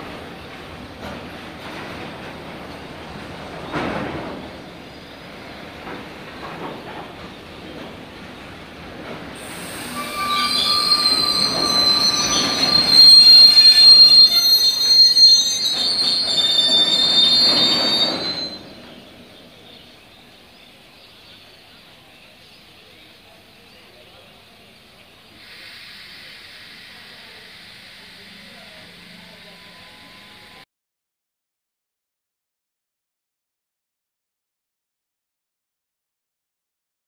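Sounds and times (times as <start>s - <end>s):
train rolling rumble: 0.0s - 30.6s
train wheels squealing: 9.4s - 19.8s, 25.4s - 30.6s.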